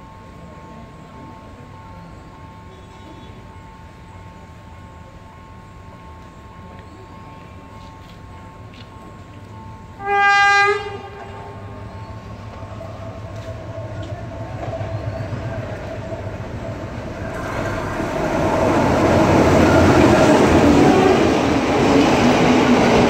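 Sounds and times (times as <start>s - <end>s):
train engine and wheels rumbling: 0.0s - 23.0s
train horn: 2.7s - 3.5s, 10.0s - 11.8s, 19.3s - 21.6s.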